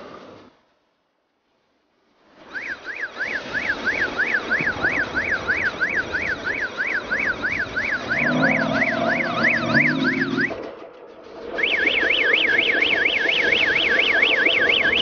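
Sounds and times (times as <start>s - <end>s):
electronic siren yelping: 2.5s - 15.0s
steady noise: 3.1s - 15.0s
low steady tone: 4.5s - 15.0s.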